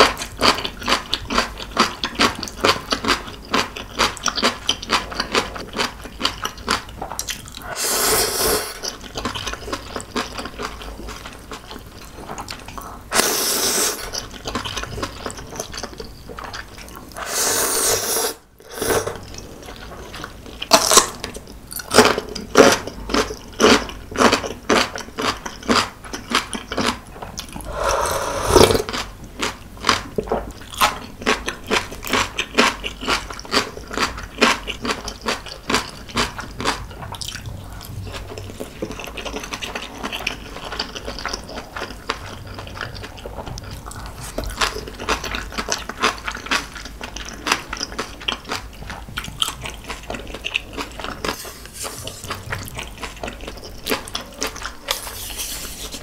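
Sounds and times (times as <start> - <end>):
close chewing of noodles: 0.0 - 56.0
slurp: 7.6 - 8.9, 13.1 - 14.2, 17.2 - 19.3, 27.6 - 28.9.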